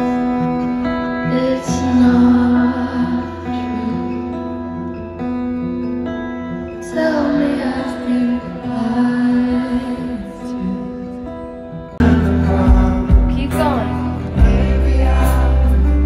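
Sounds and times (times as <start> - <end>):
guitar and held chords: 0.0 - 16.0
woman singing: 0.4 - 4.4, 6.7 - 11.3, 12.0 - 16.0.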